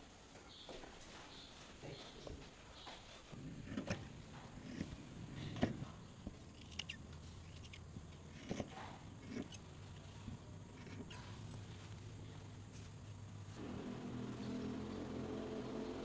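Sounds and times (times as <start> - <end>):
scissors cutting fabric: 6.5 - 9.6.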